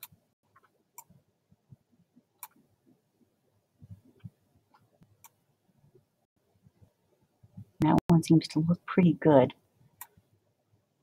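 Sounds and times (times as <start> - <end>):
computer mouse clicks: 2.4 - 2.6, 4.2 - 5.4.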